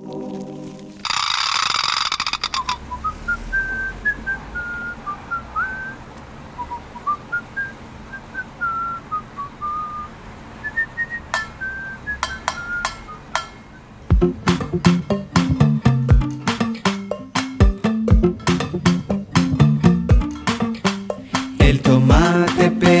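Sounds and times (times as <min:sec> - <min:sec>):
sharp clicks: 0:01.0 - 0:03.0
person whistling a tune: 0:02.9 - 0:06.0, 0:06.6 - 0:13.8.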